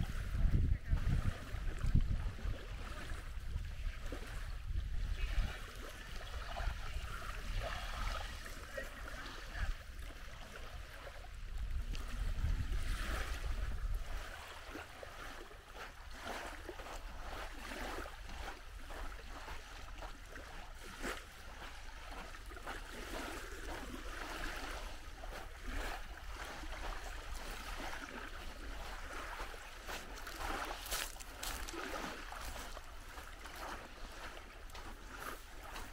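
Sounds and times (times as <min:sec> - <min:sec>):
small waves lapping on shore: 0:00.0 - 0:35.9
wind rumbling on microphone: 0:00.0 - 0:35.9
footsteps crunching on sand: 0:14.2 - 0:35.9.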